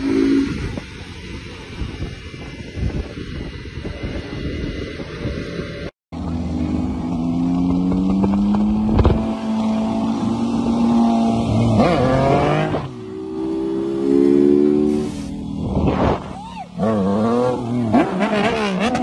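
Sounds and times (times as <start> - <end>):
motorcycle engine revving: 0.0 - 19.0
wind buffeting microphone: 0.4 - 5.9.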